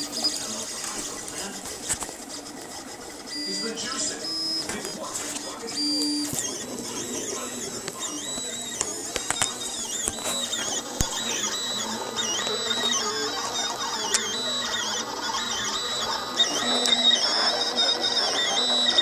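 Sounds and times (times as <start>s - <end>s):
sharp clicks: 0.0s - 19.0s
stepper motors whining: 0.0s - 19.0s.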